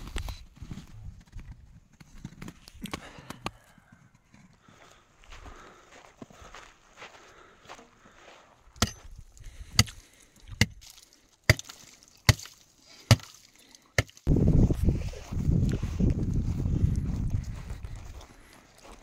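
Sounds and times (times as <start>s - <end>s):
tool chopping frozen ground: 8.8s - 14.3s.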